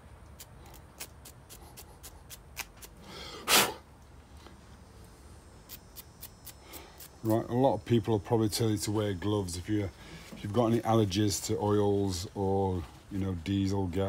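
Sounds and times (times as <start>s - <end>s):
loud rush of breath: 3.0s - 3.8s, 9.9s - 10.4s.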